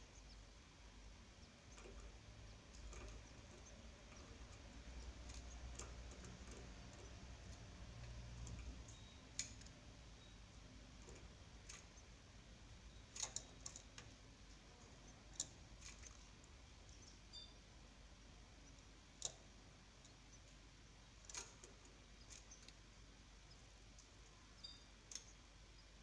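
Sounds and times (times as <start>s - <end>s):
faint clicks and ticks: 1.0s - 26.0s.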